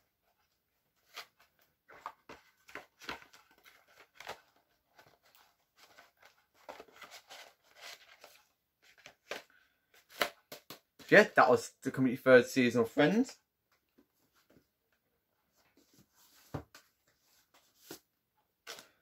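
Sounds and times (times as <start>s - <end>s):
dvd case clicks and rustles: 1.9s - 10.9s.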